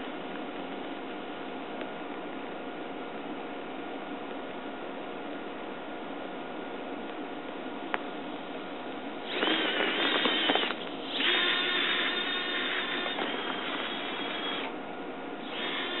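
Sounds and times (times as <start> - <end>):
servo motors gear whine: 9.2 - 14.7, 15.4 - 16.0.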